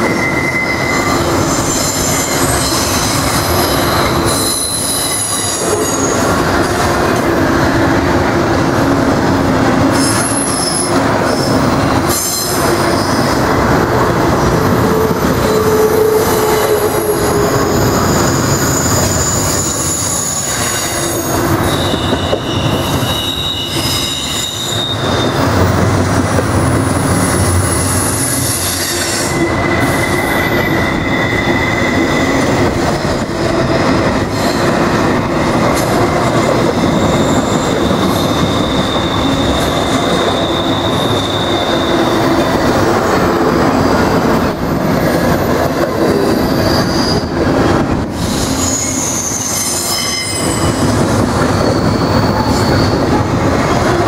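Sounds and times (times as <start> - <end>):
wheel squeals: 0.0 - 6.3, 14.6 - 25.6, 26.6 - 32.8, 36.6 - 42.7, 48.3 - 53.8
freight train rumbling past: 0.0 - 54.0.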